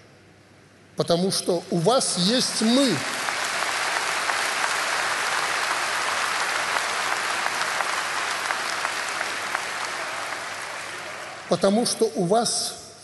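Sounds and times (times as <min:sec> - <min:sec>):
audience applauding: 0:01.9 - 0:11.7.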